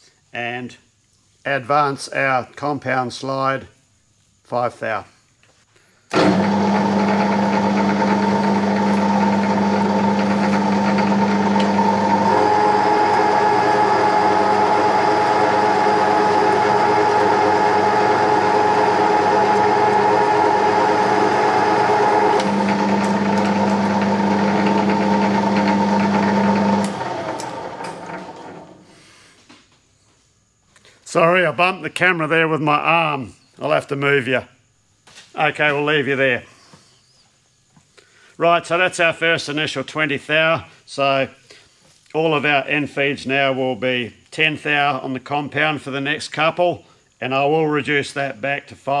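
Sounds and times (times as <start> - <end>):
lathe humming: 6.1 - 28.8
lathe running down: 6.1 - 28.8.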